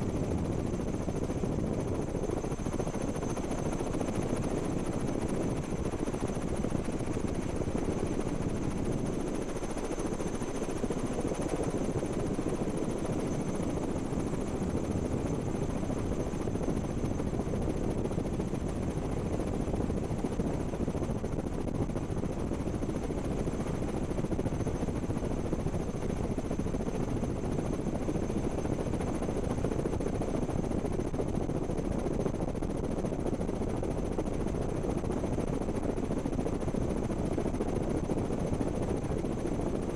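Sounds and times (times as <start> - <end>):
helicopter rotor and engine drone: 0.0 - 39.9.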